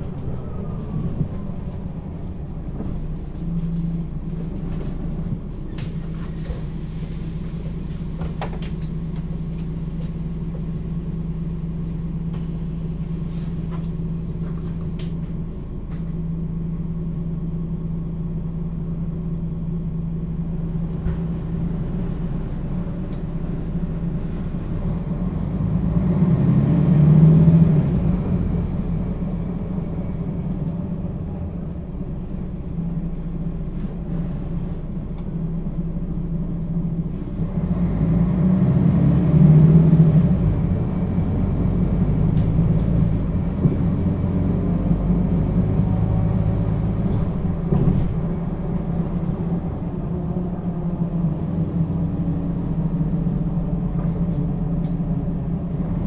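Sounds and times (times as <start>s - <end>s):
bus engine hum: 0.0s - 56.0s.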